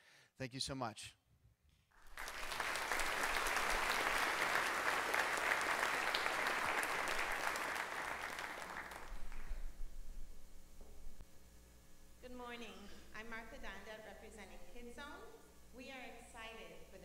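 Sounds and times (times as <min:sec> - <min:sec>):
crowd applauding: 0:02.0 - 0:09.8.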